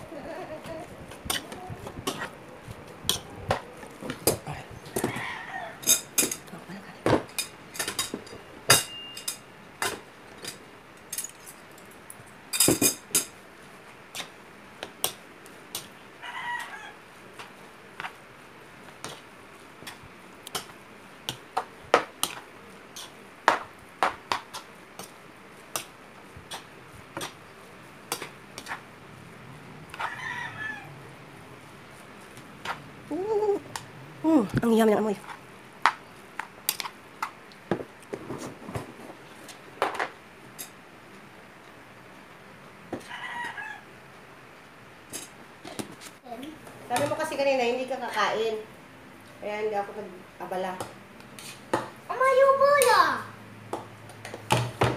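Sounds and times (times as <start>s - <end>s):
cutlery clinking on ceramic bowl: 5.8s - 6.4s.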